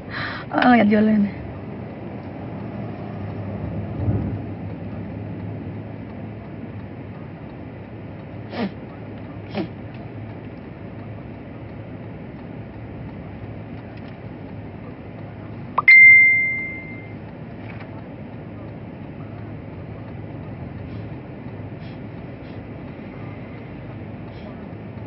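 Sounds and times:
high ringing tone: 0:15.8 - 0:17.2.

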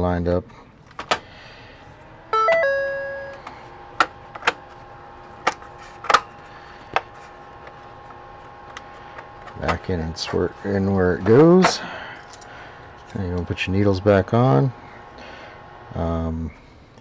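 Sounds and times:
faint steady hum: 0:00.0 - 0:17.0
two-note electronic chime: 0:02.3 - 0:03.4.

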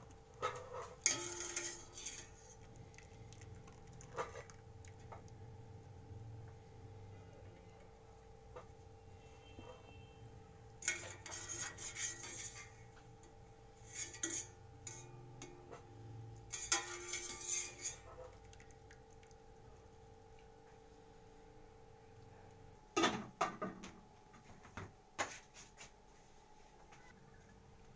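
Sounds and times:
faint steady hum: 0:00.0 - 0:25.2
skimmer scraping steel pot: 0:00.4 - 0:05.3, 0:10.8 - 0:18.3.

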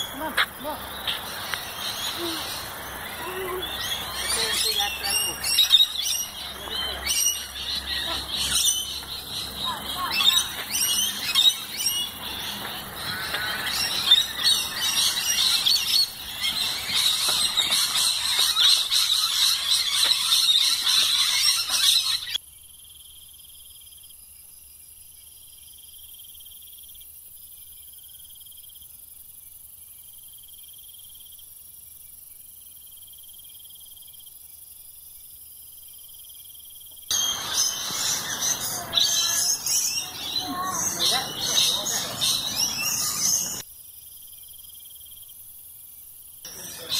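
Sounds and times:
birds chattering and screeching: 0:00.0 - 0:22.4, 0:37.1 - 0:43.7, 0:46.5 - 0:46.9.

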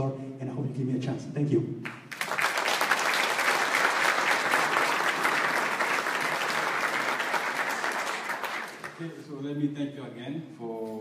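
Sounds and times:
audience applauding: 0:01.9 - 0:09.1.

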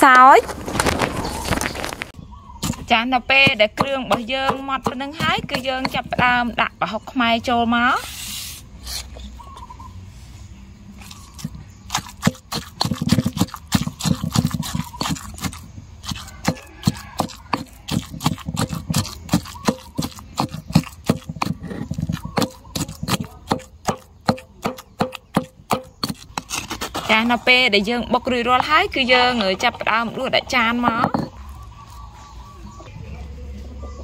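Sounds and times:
knife chopping on cutting board: 0:11.9 - 0:26.3.

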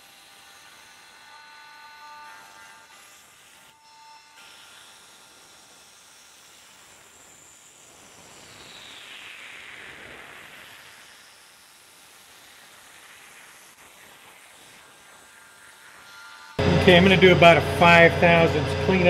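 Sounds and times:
falling whine: 0:16.5 - 0:19.0.

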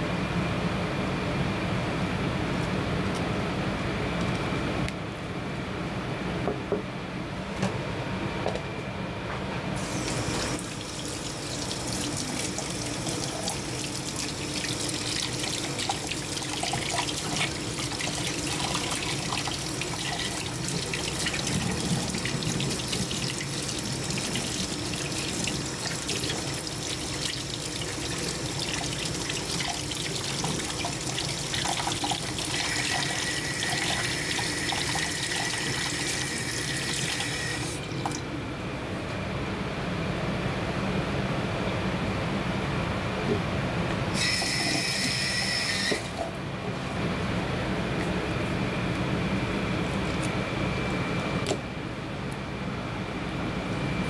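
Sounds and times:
faucet running into a steel sink: 0:09.8 - 0:38.2, 0:44.2 - 0:46.2.

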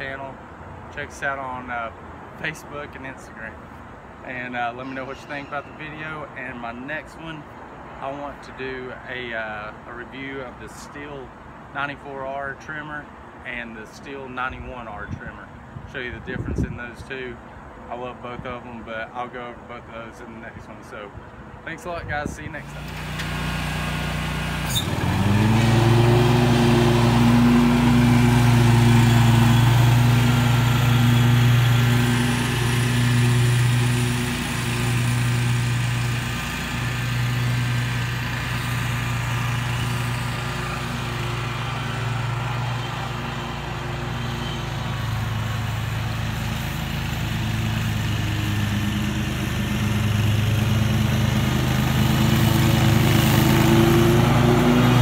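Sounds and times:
lawn mower running: 0:22.6 - 0:55.0.

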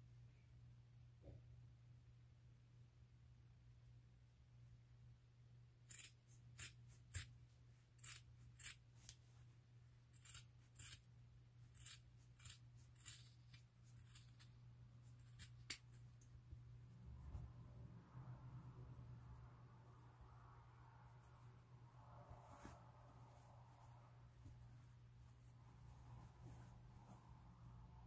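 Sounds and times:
scissors snipping fabric: 0:05.9 - 0:07.4, 0:08.0 - 0:09.2, 0:10.2 - 0:11.1, 0:11.7 - 0:16.0.

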